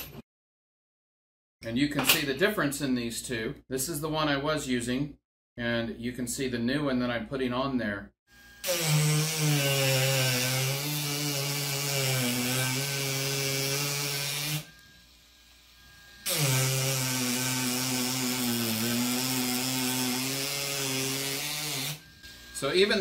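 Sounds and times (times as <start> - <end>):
power carving tool gouging wood: 8.5 - 22.6.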